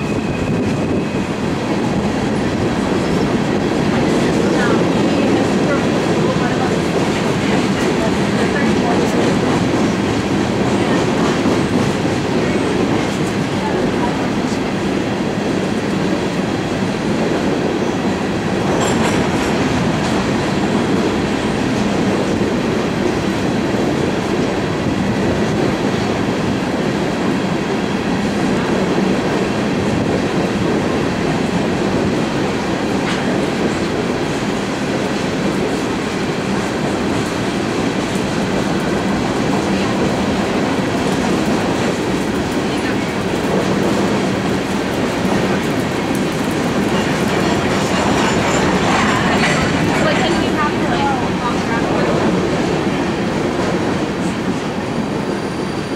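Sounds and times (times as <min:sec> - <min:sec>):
steel wheels rumbling on rail: 0:00.0 - 0:55.9
high wheel squeal: 0:55.1 - 0:55.9.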